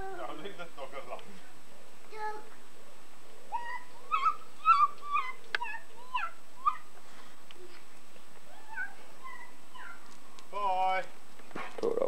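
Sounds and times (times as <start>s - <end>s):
dog whining: 3.5s - 6.9s, 8.4s - 10.1s.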